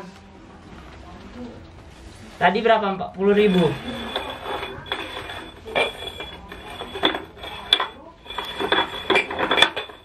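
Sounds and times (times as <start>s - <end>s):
metal goblets clinking on tiles: 3.3s - 10.0s
thin ringing note: 3.4s - 10.0s.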